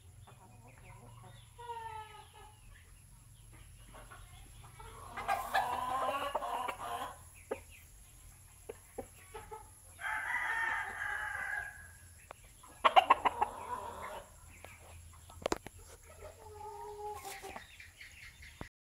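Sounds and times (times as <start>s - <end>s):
rooster clucking: 3.9s - 7.6s, 12.7s - 14.4s, 15.8s - 17.7s
rooster calling: 10.0s - 11.9s.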